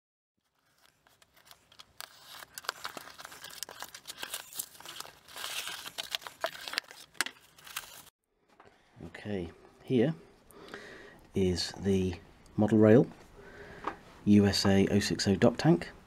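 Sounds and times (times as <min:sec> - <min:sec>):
crumpled paper rustling: 0:00.4 - 0:08.1.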